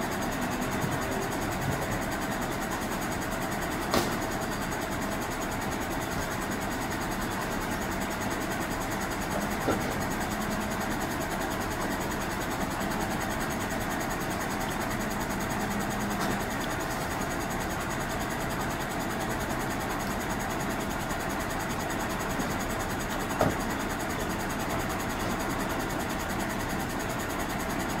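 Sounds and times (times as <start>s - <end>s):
garbage truck idling: 0.0s - 28.0s
rubbish knocking into hopper: 3.8s - 4.4s.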